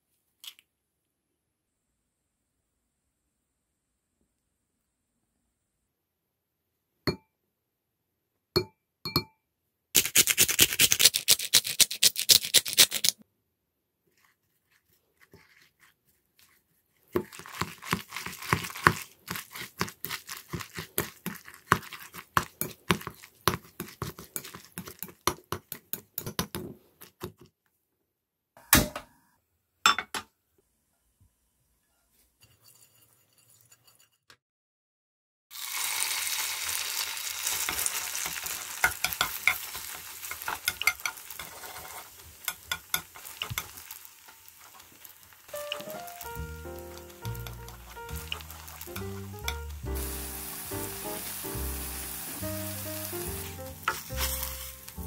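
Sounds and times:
frying sizzle: 17.2s - 25.2s, 35.5s - 55.0s
chopsticks tapping pan: 37.7s - 50.2s, 52.2s - 55.0s.

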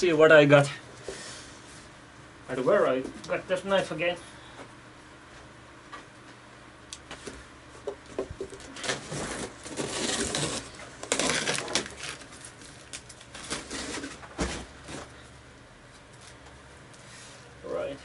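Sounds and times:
knife cutting packing tape: 8.8s - 14.2s.

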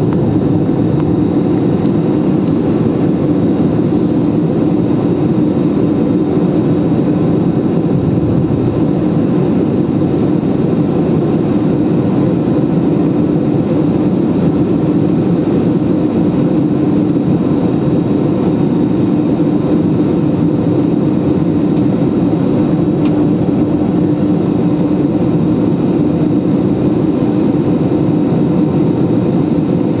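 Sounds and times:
jet engines and airflow in cabin: 0.0s - 30.0s.

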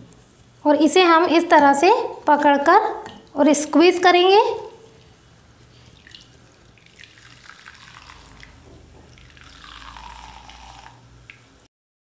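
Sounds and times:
milk trickling through a strainer: 4.9s - 11.6s.

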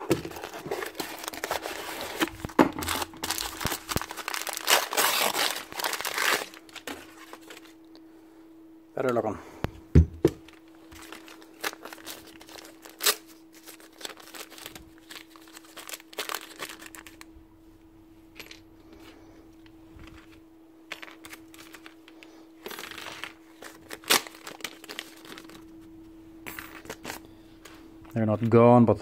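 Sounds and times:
plastic bags crinkling and tearing: 0.0s - 7.8s, 10.5s - 17.2s, 21.2s - 25.7s
steady low hum: 0.0s - 29.0s.

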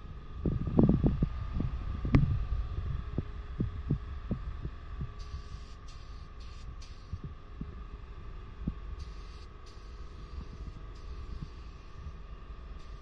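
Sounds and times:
steady low hum: 0.0s - 13.0s
soft low thumps: 0.4s - 5.2s.

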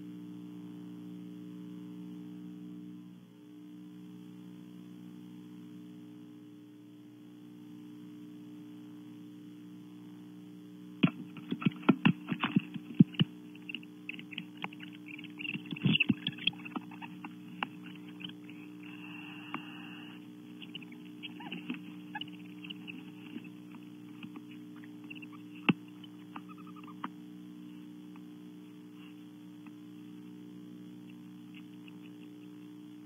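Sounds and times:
electrical hum: 0.0s - 33.0s
owl call: 13.1s - 17.2s, 17.8s - 23.6s, 24.5s - 27.1s.

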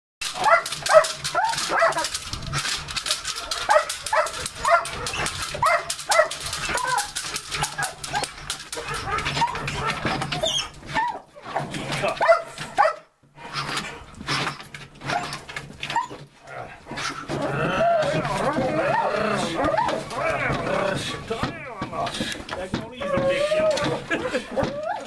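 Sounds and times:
dog barking: 0.4s - 2.1s, 3.7s - 7.1s, 8.8s - 10.0s, 12.2s - 13.1s.

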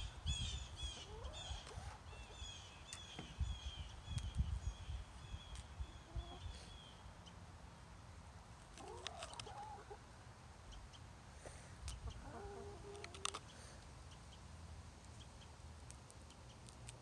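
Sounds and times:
hens clucking: 1.0s - 2.4s, 8.7s - 10.0s, 11.9s - 13.5s.

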